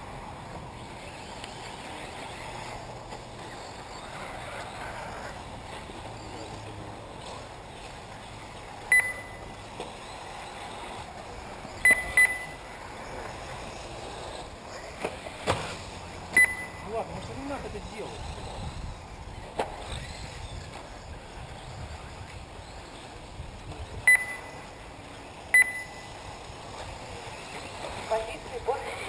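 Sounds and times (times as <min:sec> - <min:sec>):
steady background noise: 0:00.0 - 0:29.0
short high electronic beeps: 0:08.9 - 0:09.5, 0:11.8 - 0:12.6, 0:16.4 - 0:16.9, 0:24.1 - 0:24.6, 0:25.5 - 0:26.1.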